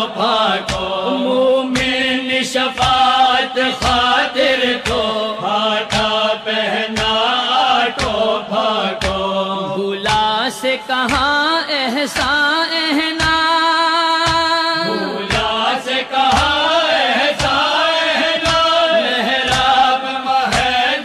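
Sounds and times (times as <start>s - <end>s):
percussive beat: 0.6s - 2.1s, 14.3s - 16.7s
person singing a melodic line: 1.0s - 1.8s, 14.8s - 15.4s.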